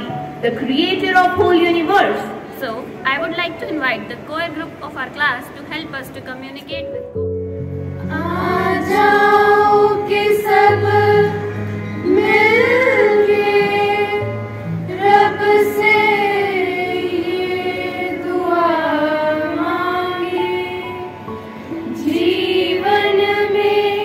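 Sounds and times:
harmonium chords: 1.8 - 24.0
girls' choir singing: 8.0 - 24.0.

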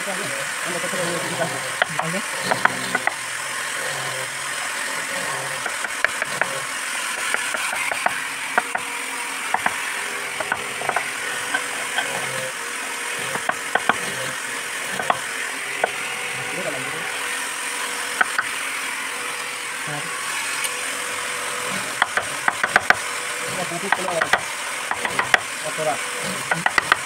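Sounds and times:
mallet knocking on gouge handle: 10.4 - 12.2, 22.0 - 23.0, 23.9 - 25.4.

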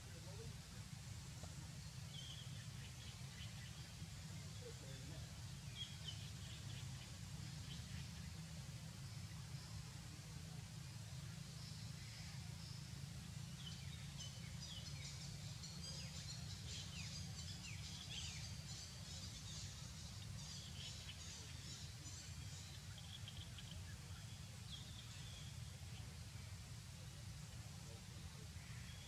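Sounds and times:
small birds chirping: 11.0 - 29.0.

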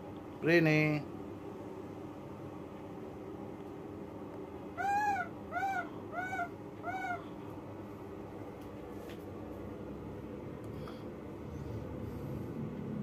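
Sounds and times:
baby macaque coo calls: 4.8 - 7.3.

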